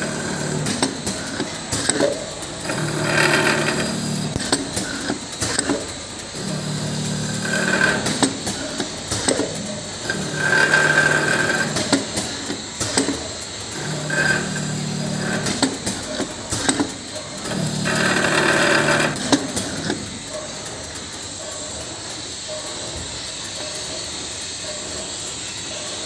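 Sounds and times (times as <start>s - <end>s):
machine motor hum: 0.0s - 26.0s
sharp clicks and knocks: 0.6s - 2.8s, 3.4s - 6.0s, 7.8s - 10.2s, 11.5s - 13.4s, 15.3s - 21.9s.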